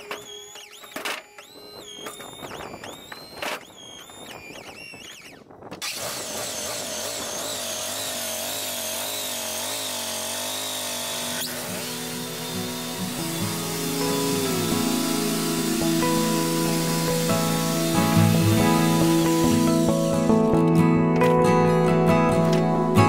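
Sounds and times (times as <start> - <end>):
hydraulic pump motor whining: 0.0 - 20.8
background music: 11.8 - 23.0.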